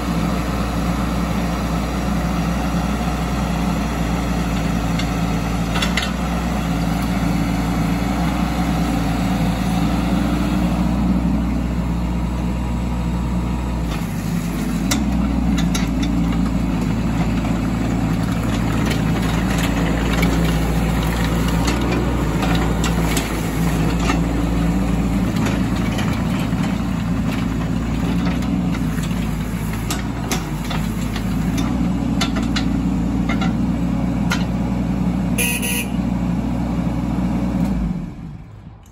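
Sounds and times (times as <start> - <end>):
excavator diesel engine running: 0.0 - 38.9.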